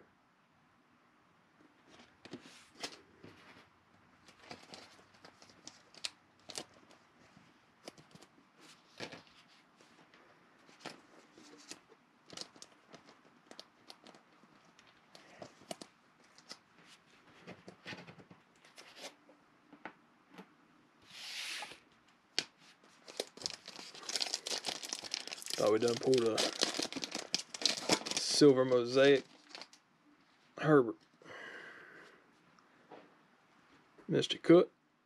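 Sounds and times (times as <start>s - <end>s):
trading cards and plastic sleeve handling: 4.2s - 7.1s, 7.8s - 19.2s, 22.4s - 29.8s.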